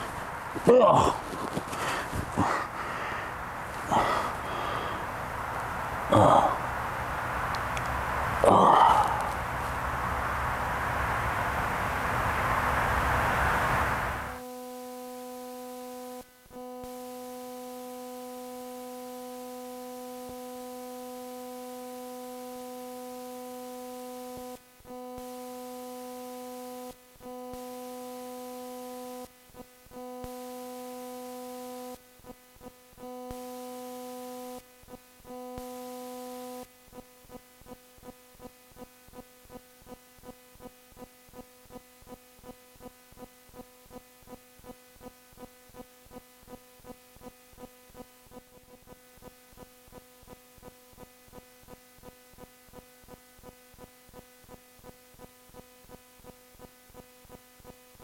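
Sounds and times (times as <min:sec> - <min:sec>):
electronic hum-like tone: 0:00.0 - 0:58.0
loud rushing noise: 0:05.0 - 0:14.4.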